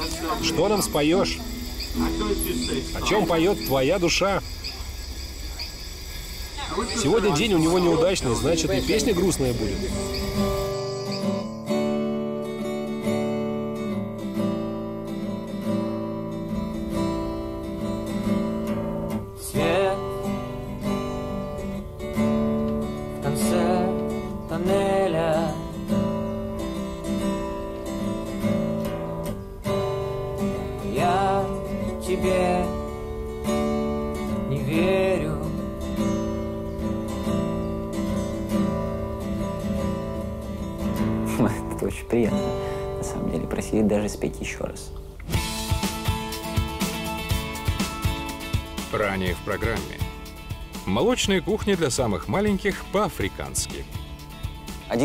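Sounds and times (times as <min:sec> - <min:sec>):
acoustic guitar strumming chords: 0:00.0 - 0:55.0
person singing long notes: 0:23.2 - 0:25.8.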